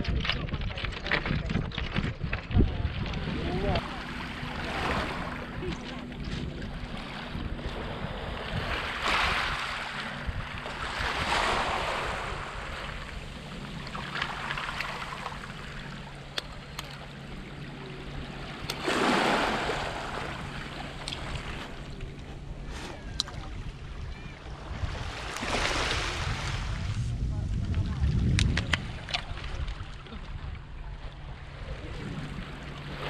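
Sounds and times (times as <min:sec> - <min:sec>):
wind rumble on microphone: 0:00.0 - 0:33.0
waves washing onto pebbles: 0:18.8 - 0:20.5.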